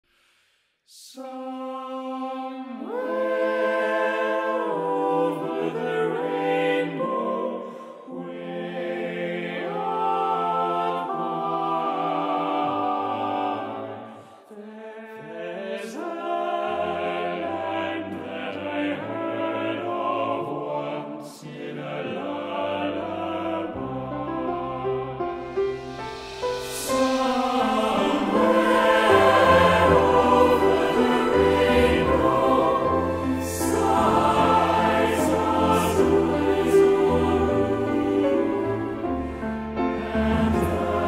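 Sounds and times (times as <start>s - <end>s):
male vocal ensemble singing: 1.0s - 41.0s.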